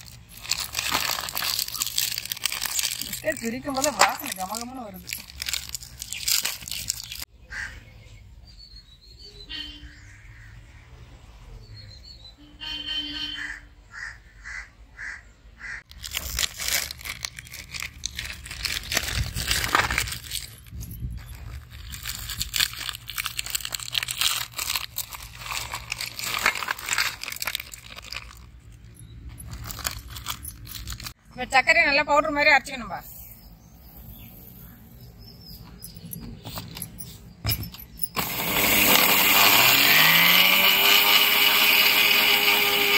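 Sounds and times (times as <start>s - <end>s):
plastic wrappers crinkling: 0.0s - 7.3s, 15.9s - 31.2s
harsh caw-like bird calls: 7.4s - 7.9s, 9.8s - 10.9s, 13.4s - 15.9s
birds chirping: 31.4s - 38.2s.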